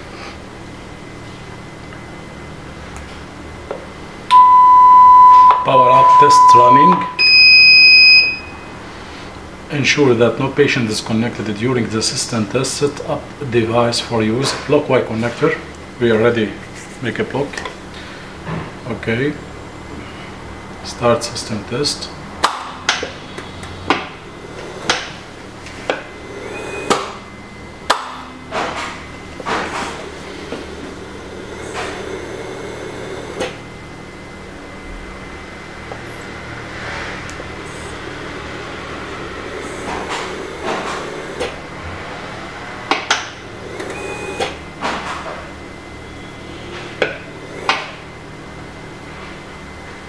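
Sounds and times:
low steady hum: 0.0s - 21.0s
steady hum: 0.0s - 50.0s
brief high tone: 4.3s - 8.7s.

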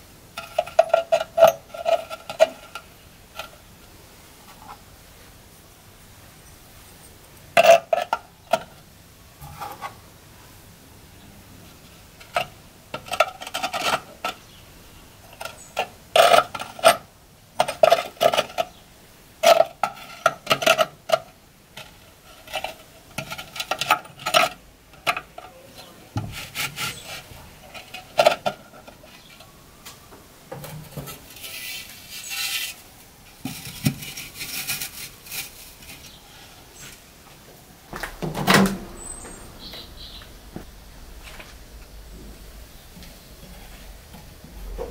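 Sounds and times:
kiln lid scraping: 0.4s - 3.7s, 9.4s - 10.0s, 21.8s - 29.6s, 30.5s - 36.2s.

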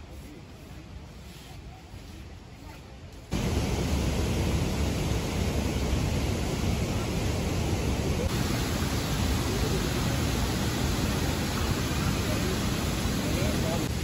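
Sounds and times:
waterfall roaring over rock: 3.4s - 14.0s.

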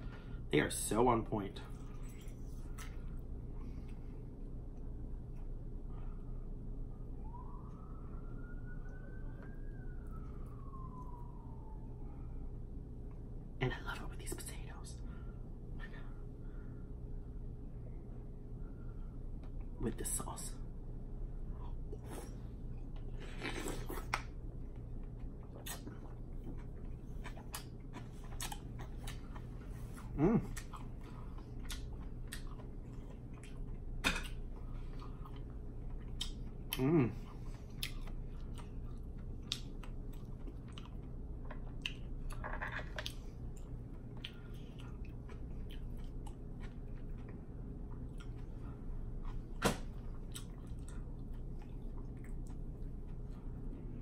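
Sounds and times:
close chewing: 22.9s - 42.4s, 43.0s - 53.3s
person humming: 30.2s - 30.5s, 36.8s - 37.2s.

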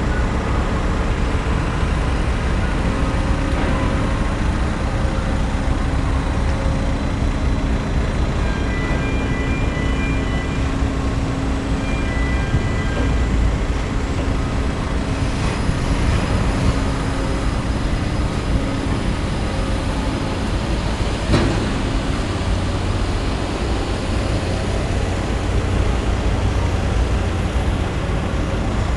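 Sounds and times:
low rumble with rushing noise: 12.4s - 28.9s.

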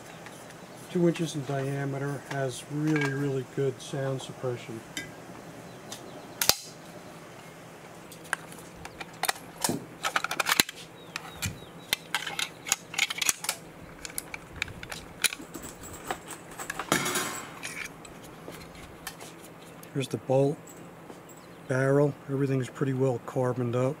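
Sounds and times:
gun parts clicking and clacking: 8.1s - 19.2s
metal parts sliding and knocking: 8.2s - 19.4s.

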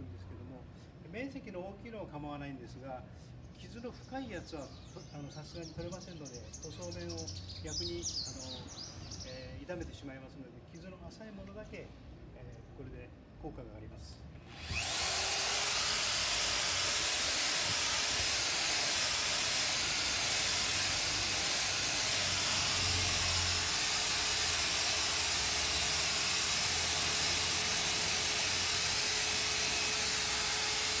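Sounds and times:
electric polisher whining: 14.5s - 31.0s.

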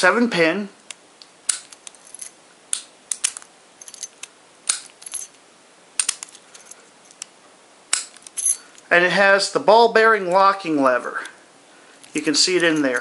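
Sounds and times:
keys clinking against padlock: 1.6s - 2.4s, 3.2s - 5.4s, 6.0s - 7.2s, 8.1s - 8.8s, 12.0s - 13.0s.

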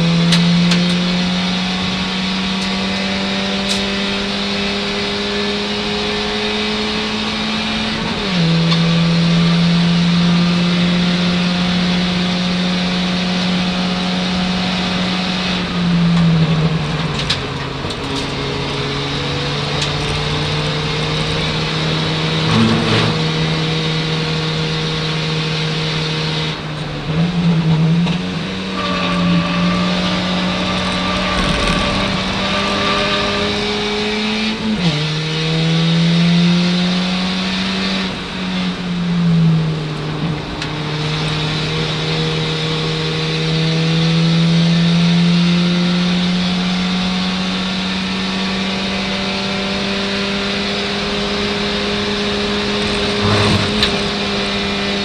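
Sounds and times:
race car engine under load: 0.0s - 55.0s.

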